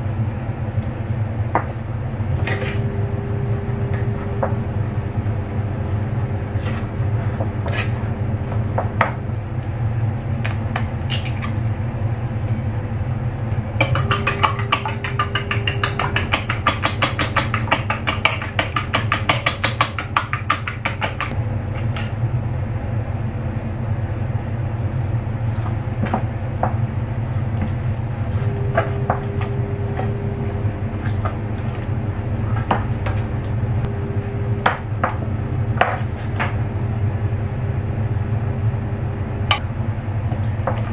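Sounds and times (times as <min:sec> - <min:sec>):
steady low hum: 0:00.0 - 0:40.9
spatula scraping dough in saucepan: 0:06.5 - 0:08.1, 0:27.3 - 0:33.4
eggs beaten in metal bowl: 0:13.6 - 0:22.1, 0:26.0 - 0:33.9
spatula knocking against pan: 0:13.8 - 0:22.0.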